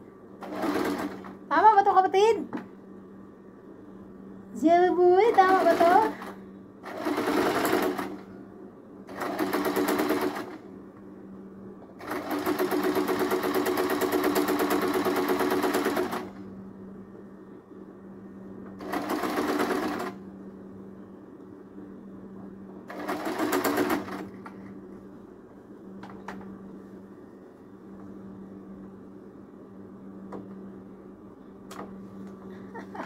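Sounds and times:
faint steady hum: 0:00.0 - 0:33.0
sewing machine stitching: 0:05.3 - 0:08.2.

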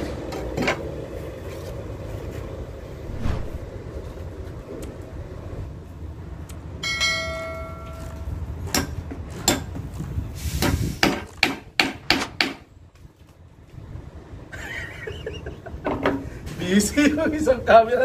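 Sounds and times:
bell-like ding: 0:06.8 - 0:08.3.

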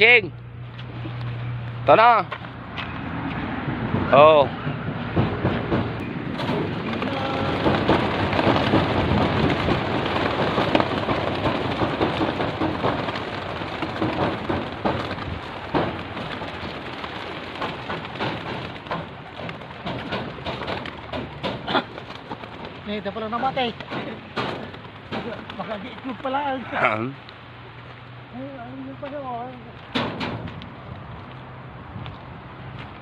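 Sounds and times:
pigeons wingbeats clattering: 0:05.4 - 0:26.6.

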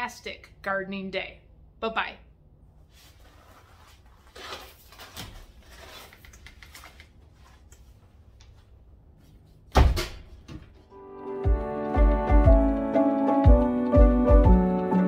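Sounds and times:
door banging shut: 0:09.7 - 0:10.8.

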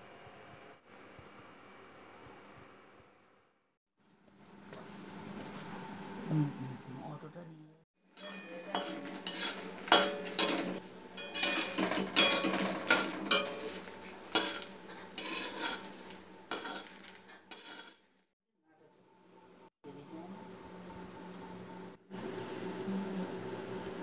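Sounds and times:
scrubbing a metal pan: 0:08.2 - 0:18.0.

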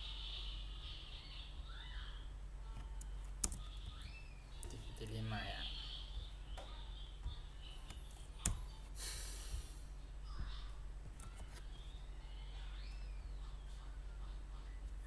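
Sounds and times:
low electrical hum: 0:00.0 - 0:15.0
keyboard and mouse clicks: 0:02.8 - 0:03.7.

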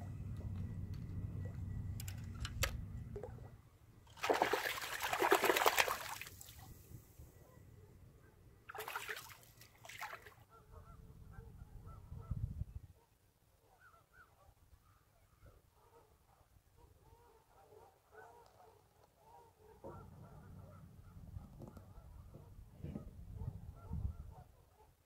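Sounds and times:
fish splashing at water surface: 0:04.1 - 0:06.6, 0:08.7 - 0:10.4.

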